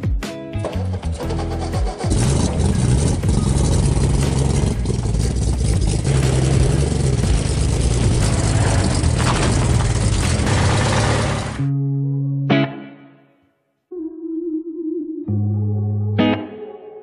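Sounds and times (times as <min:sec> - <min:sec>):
pickup truck engine at low revs: 0:01.0 - 0:11.6.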